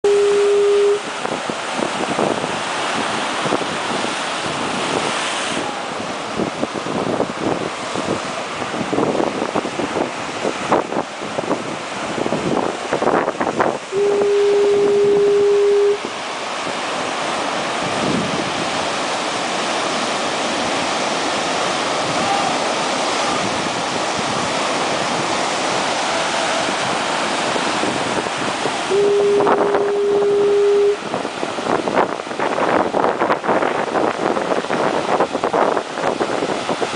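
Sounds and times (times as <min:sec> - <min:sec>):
foghorn blasts: 0:00.0 - 0:01.2, 0:13.9 - 0:16.1, 0:28.8 - 0:31.2
breaking surf: 0:00.1 - 0:36.9.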